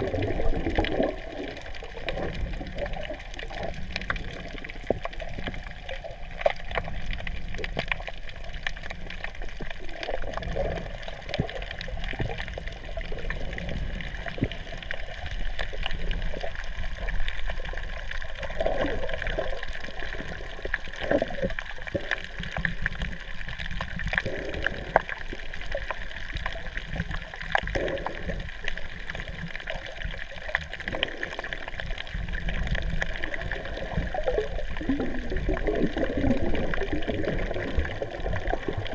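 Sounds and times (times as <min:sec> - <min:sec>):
underwater sloshing and gurgling: 0:00.0 - 0:38.9.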